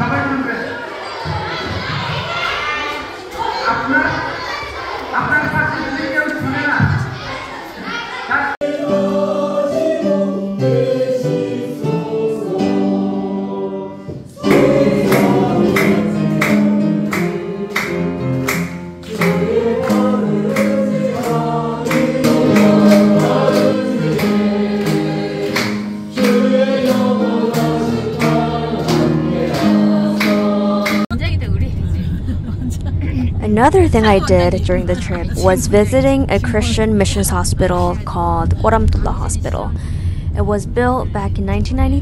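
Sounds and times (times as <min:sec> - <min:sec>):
congregation singing a hymn: 0:07.2 - 0:31.1.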